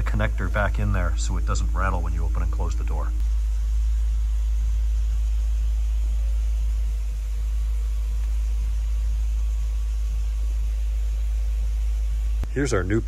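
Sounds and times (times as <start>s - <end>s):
faint repeating pulse: 0.0s - 13.0s
low rumble: 0.0s - 13.0s.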